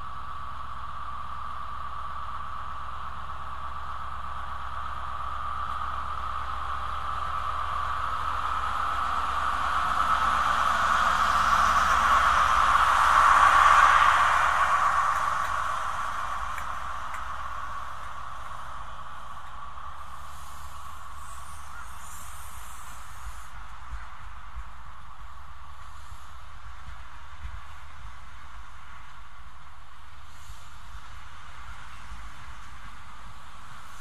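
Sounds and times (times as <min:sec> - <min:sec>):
diesel train engine approaching: 0:00.0 - 0:34.0.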